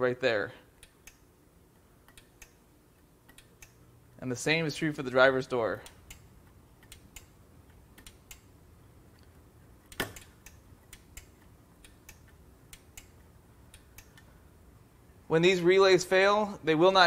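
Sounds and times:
door lock relay clicking: 9.8 - 14.3.

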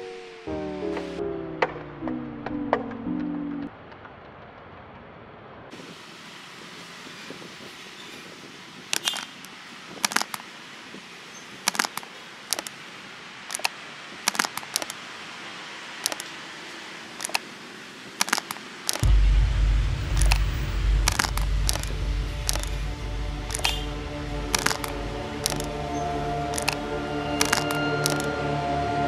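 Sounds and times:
steady hiss: 5.7 - 29.0
deep low rumble: 19.0 - 28.9.

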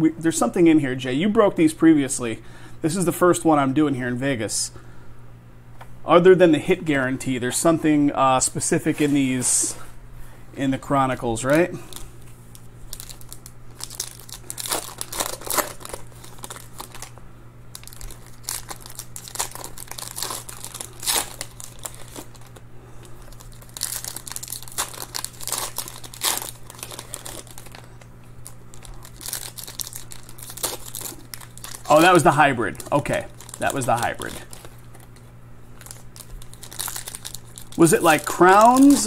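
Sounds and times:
foil wrappers crinkling and tearing: 11.3 - 39.0.

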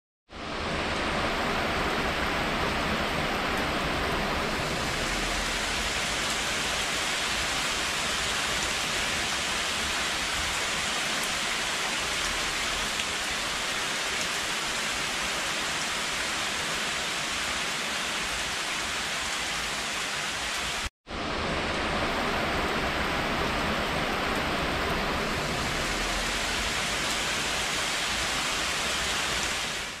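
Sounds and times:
heavy rain pouring: 0.3 - 30.0.

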